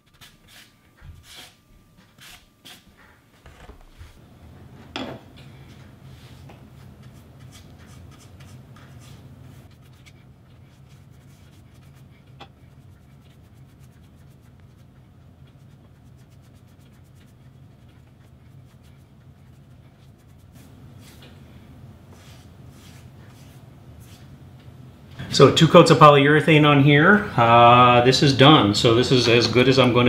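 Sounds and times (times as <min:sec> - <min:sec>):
low steady hum: 0:00.0 - 0:30.0
paintbrush brushing on wood: 0:06.0 - 0:21.4, 0:22.1 - 0:24.4.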